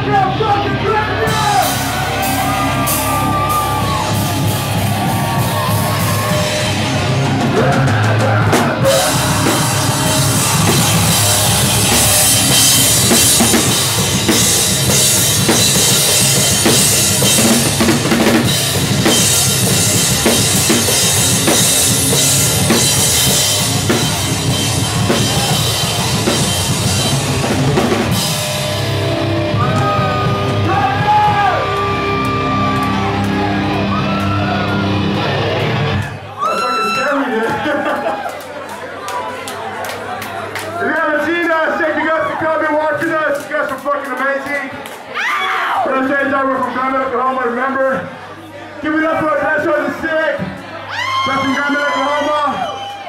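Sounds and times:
drum kit: 0.0s - 36.2s
rock band playing live: 0.0s - 36.4s.

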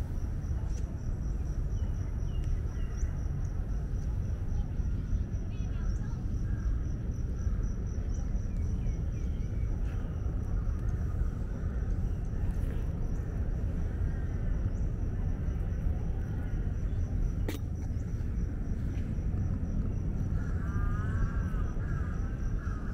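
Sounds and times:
low outdoor rumble: 0.0s - 22.9s.

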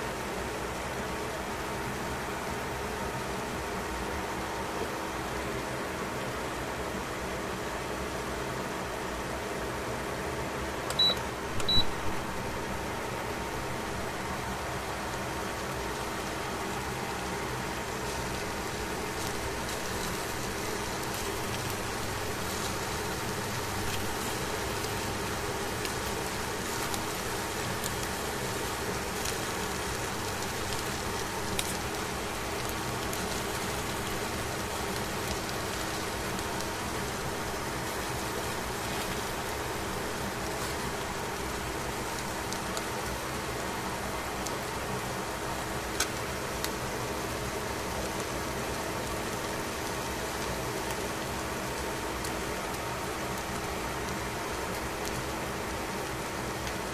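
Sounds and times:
faint steady hum: 0.0s - 56.9s
fish sizzling in a pan: 12.2s - 56.9s.

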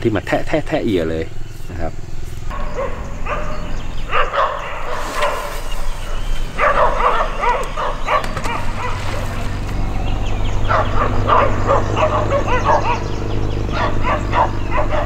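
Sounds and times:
dog barking: 2.5s - 9.6s, 10.6s - 15.0s.

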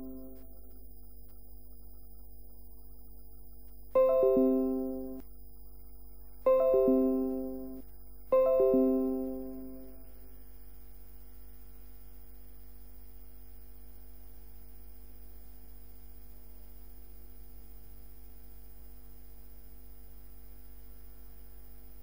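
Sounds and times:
ringing note: 0.0s - 0.4s, 4.0s - 5.2s, 6.5s - 7.8s, 8.4s - 10.1s
faint constant tones: 0.0s - 22.0s
low electrical hum: 0.0s - 22.0s.

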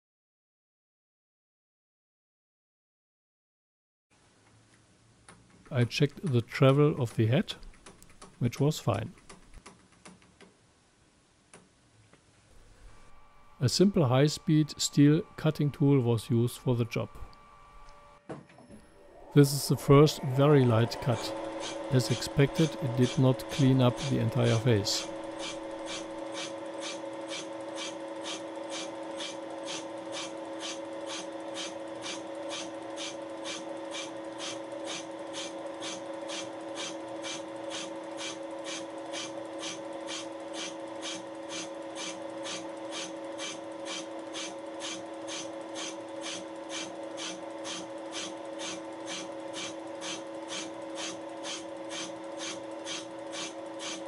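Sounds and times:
milling machine hum: 12.6s - 54.0s
cutting tool scraping hiss: 19.4s - 54.0s.

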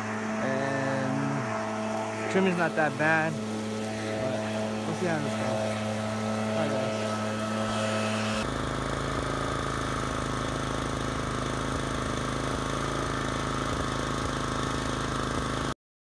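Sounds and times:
lawn mower engine droning: 0.0s - 15.8s.

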